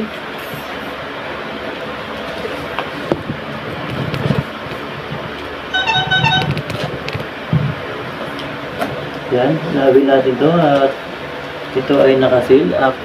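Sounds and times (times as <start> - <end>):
horn tooting: 5.7 - 6.6.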